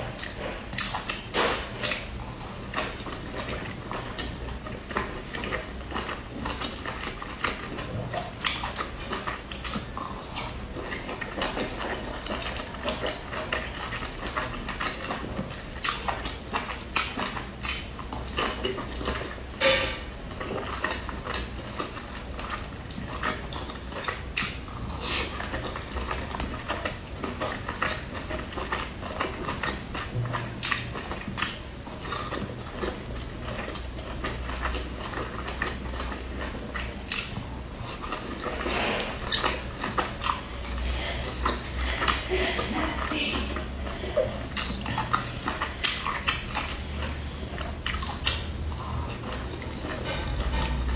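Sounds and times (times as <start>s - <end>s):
wet chewing: 0.0s - 50.9s
lip smacks and slurps: 15.8s - 18.8s, 36.7s - 40.5s.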